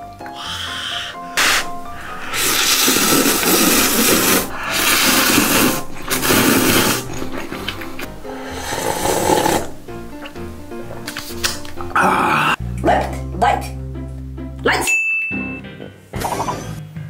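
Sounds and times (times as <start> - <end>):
person slurping noodles: 0.2 - 12.6.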